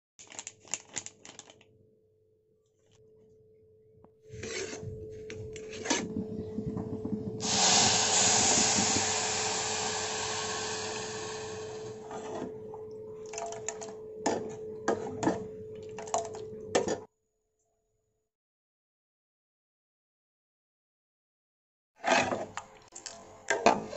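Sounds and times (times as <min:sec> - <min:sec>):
metal spoon scraping oats in pot: 0:04.4 - 0:04.8
water hissing in hot pot: 0:07.4 - 0:12.1.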